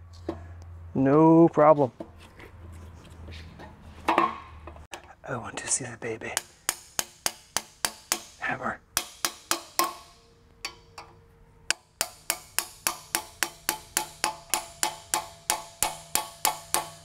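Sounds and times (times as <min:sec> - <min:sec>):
hammer tapping on steel: 0:06.3 - 0:08.4, 0:09.0 - 0:17.0.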